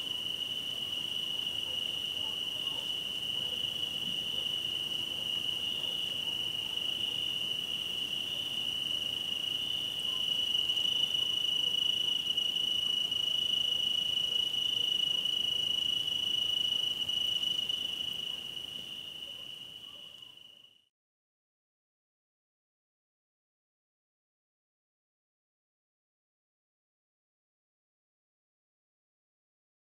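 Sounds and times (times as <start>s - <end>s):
crickets trilling: 0.0s - 20.8s.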